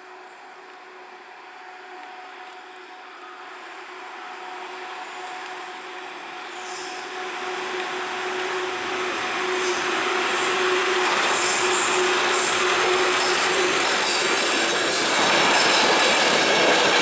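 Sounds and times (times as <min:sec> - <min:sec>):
electric locomotive tone: 0:00.0 - 0:17.0
rail and wheel noise: 0:00.0 - 0:17.0
high wheel squeals: 0:06.3 - 0:17.0.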